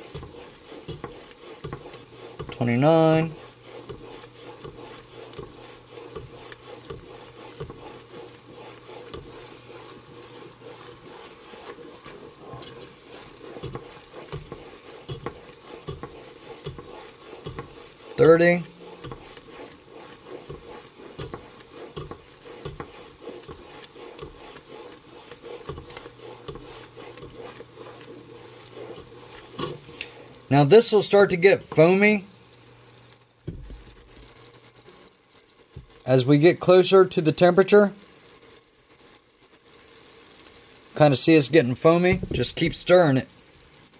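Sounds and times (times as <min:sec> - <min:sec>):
spoon scraping metal pot: 0:00.0 - 0:30.4
syrup sizzling and bubbling: 0:00.0 - 0:43.9.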